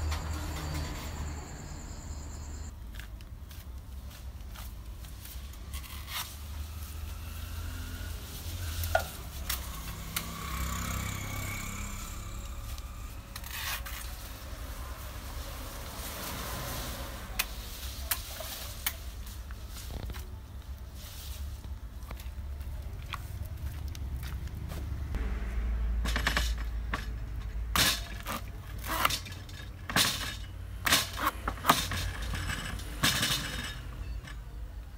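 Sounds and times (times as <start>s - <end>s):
rustling: 13.4s - 23.5s.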